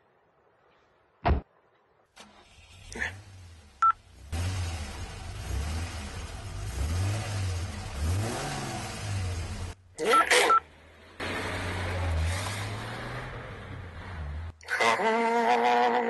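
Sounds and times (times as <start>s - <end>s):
car engine revving: 2.2s - 9.8s, 10.6s - 14.6s.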